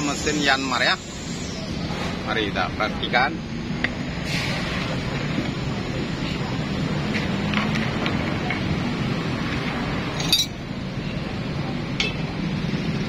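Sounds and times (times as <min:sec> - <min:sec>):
metal tools clinking: 0:10.1 - 0:10.6.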